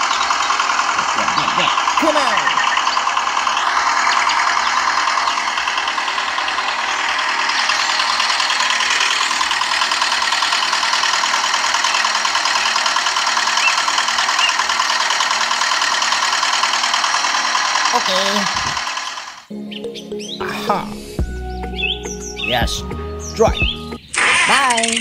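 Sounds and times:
model diesel engine chugging: 0:00.0 - 0:19.5.

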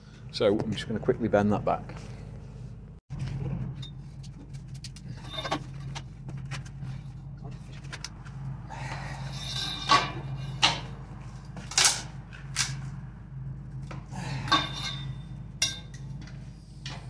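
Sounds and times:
steel bar clanking: 0:09.3 - 0:10.9, 0:14.4 - 0:16.1.

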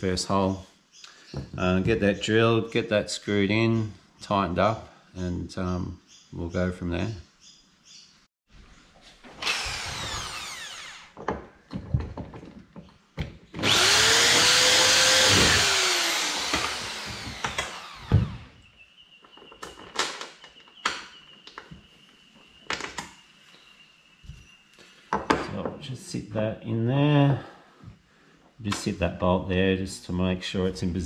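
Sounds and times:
power drill boring into metal: 0:09.4 - 0:11.2, 0:13.6 - 0:18.6.

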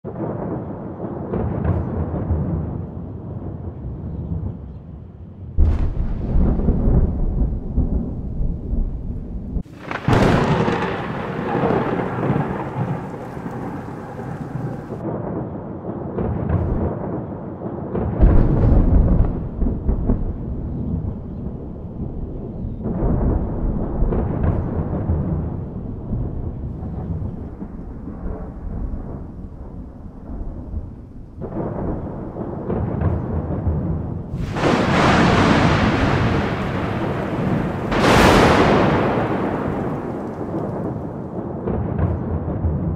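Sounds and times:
thunder rumbling: 0:05.6 - 0:42.9
rain falling: 0:05.8 - 0:15.0, 0:34.3 - 0:41.4.

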